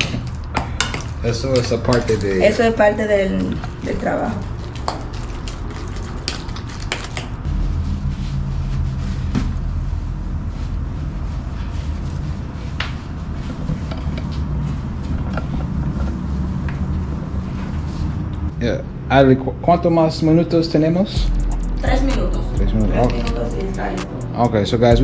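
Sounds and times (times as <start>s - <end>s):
steady low hum: 7.4s - 25.0s.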